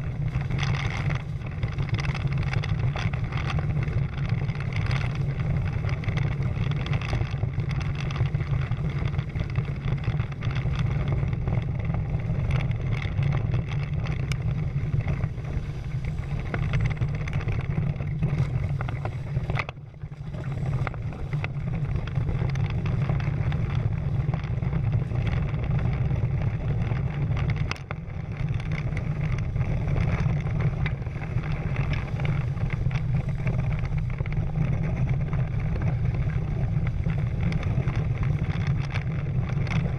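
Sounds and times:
wind buffeting microphone: 0.0 - 39.9.

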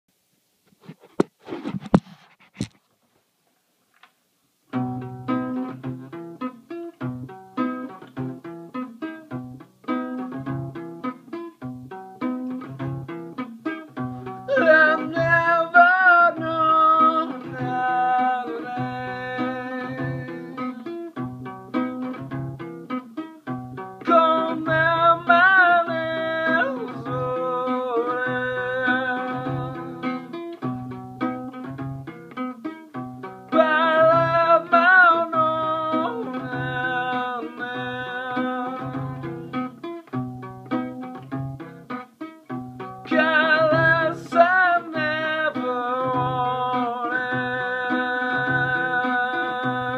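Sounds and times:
guitar picking: 4.7 - 49.9
man singing: 14.4 - 21.0, 24.0 - 30.4, 33.5 - 39.7, 43.0 - 49.9.

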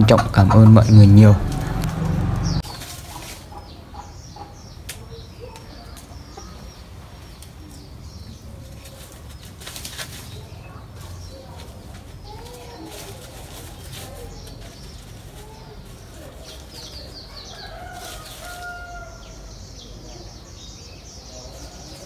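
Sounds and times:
scuffs in dry leaves: 1.4 - 3.7, 8.5 - 19.3
soft wavering chicken calls: 2.5 - 9.4, 10.4 - 20.5.

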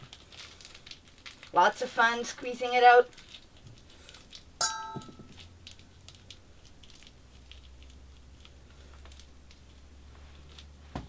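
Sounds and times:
dough squishing: 0.0 - 11.0
utensil knocking metal bowl: 4.6 - 5.3.

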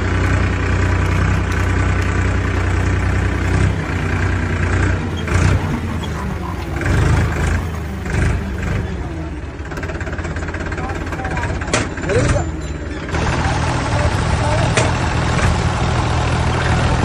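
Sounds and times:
engine-like drone: 0.0 - 17.0.

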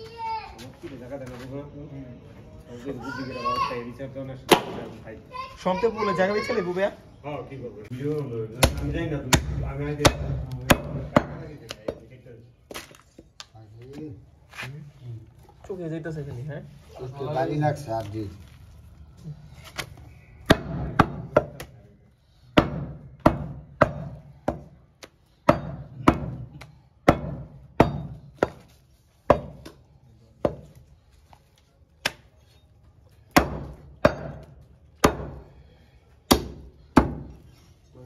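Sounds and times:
cleaver chopping on wooden block: 8.6 - 12.0, 22.6 - 28.7, 30.4 - 30.7, 33.3 - 35.4, 36.3 - 37.3.

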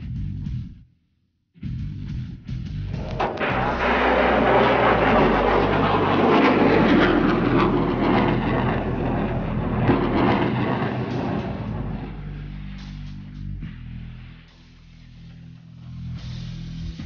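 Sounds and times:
rocket motor roaring: 2.9 - 13.5.

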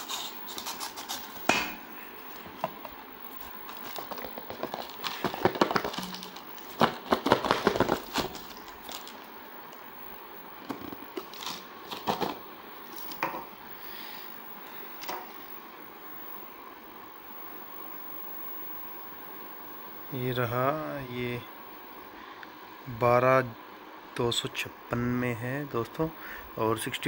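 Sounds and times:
plastic mailer bag crinkling: 2.3 - 9.4, 10.6 - 13.2.

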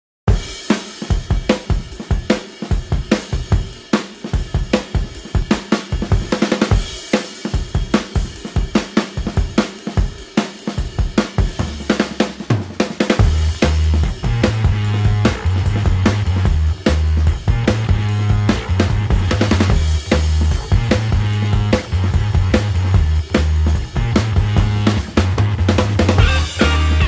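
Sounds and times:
drum kit beat: 0.3 - 27.0
low bass note: 26.2 - 27.0.

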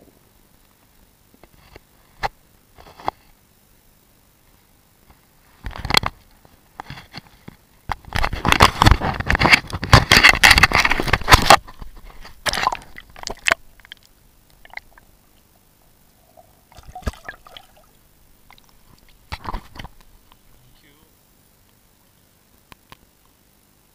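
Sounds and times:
water splashing and sloshing: 12.2 - 15.1, 16.2 - 19.9.

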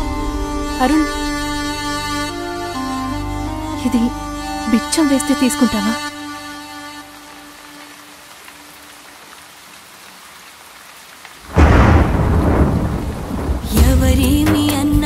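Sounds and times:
heavy rain hissing: 0.0 - 15.0
thunder crack and rumble: 11.4 - 14.7.

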